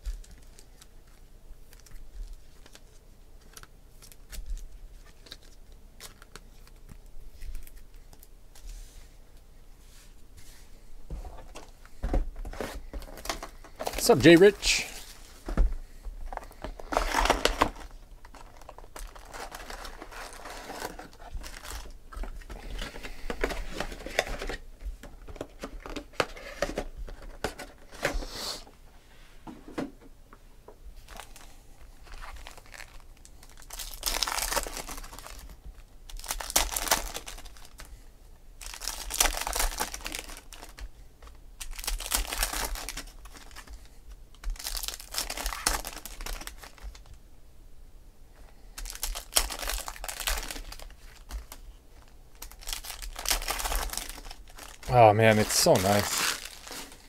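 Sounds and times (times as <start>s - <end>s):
foil wrappers tearing and crinkling: 16.5s - 22.0s, 31.1s - 37.9s, 38.6s - 47.1s, 48.8s - 57.0s.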